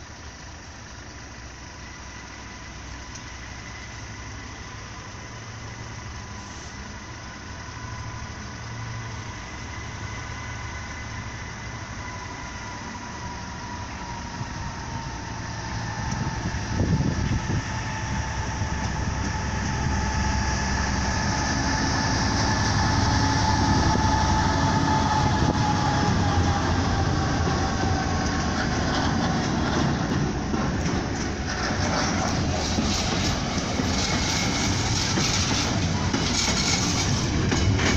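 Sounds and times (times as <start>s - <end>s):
diesel locomotive engine: 0.0s - 37.9s
steady high-pitched tone: 1.8s - 29.2s.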